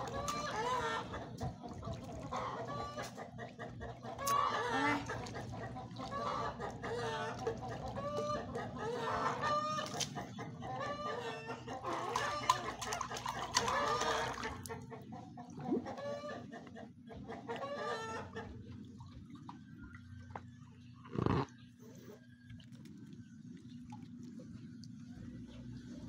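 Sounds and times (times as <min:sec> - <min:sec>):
chickens clucking: 0:00.0 - 0:19.2.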